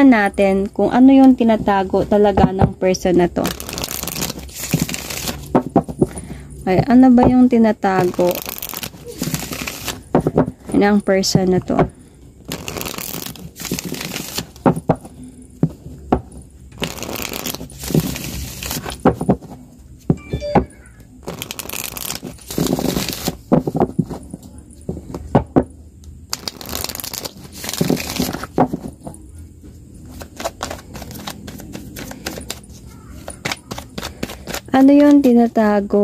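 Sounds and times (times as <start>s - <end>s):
cards riffling: 3.5s - 5.9s, 8.0s - 10.3s, 12.4s - 15.0s, 16.8s - 19.5s, 21.2s - 23.9s, 26.3s - 29.0s, 30.0s - 35.4s.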